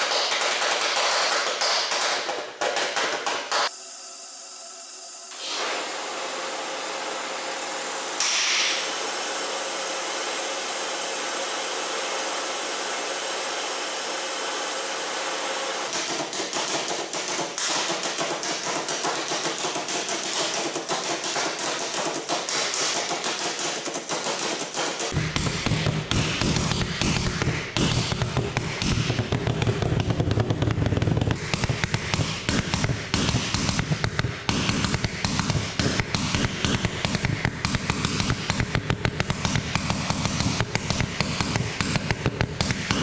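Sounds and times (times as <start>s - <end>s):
engine firing rapid sharp pops: 8.2s - 8.8s, 15.9s - 43.0s
hiss of flow through tube: 8.2s - 8.9s.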